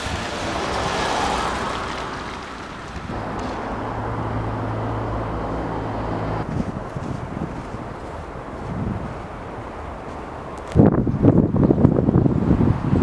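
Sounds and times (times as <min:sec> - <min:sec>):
passing traffic engine hum: 0:00.0 - 0:13.0
wind on microphone: 0:03.0 - 0:13.0.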